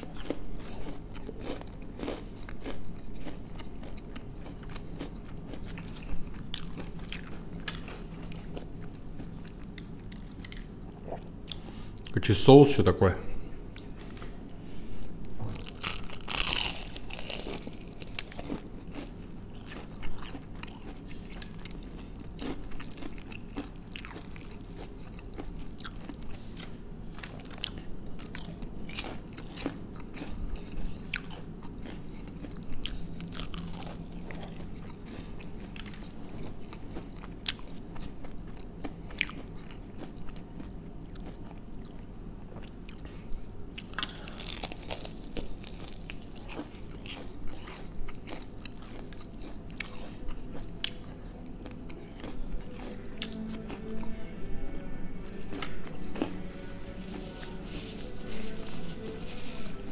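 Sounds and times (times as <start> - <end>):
crunchy bites and chewing: 0.0 - 12.1, 13.7 - 53.7, 55.2 - 56.7.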